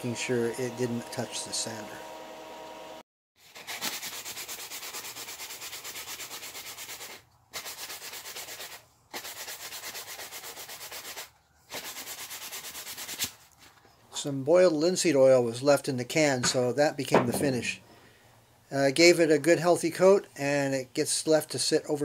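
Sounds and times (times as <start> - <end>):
sandpaper rasping on wood: 3.4 - 13.4.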